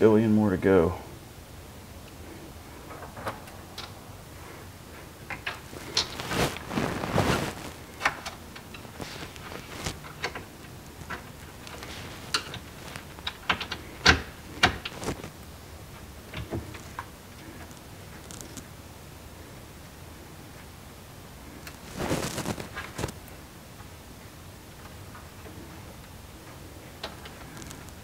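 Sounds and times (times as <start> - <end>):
scraping rustle: 2.2 - 15.4, 16.4 - 18.7, 21.5 - 23.2, 27.0 - 28.0.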